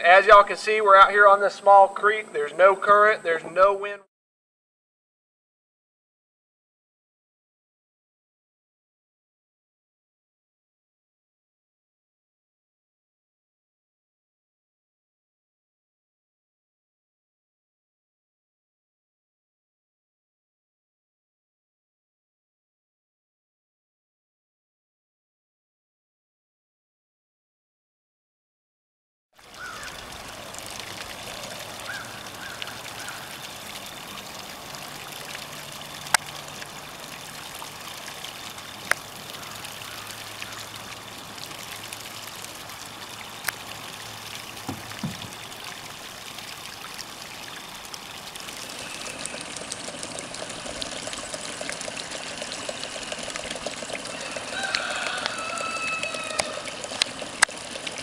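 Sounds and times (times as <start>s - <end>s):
water splashing and trickling: 29.4s - 58.0s.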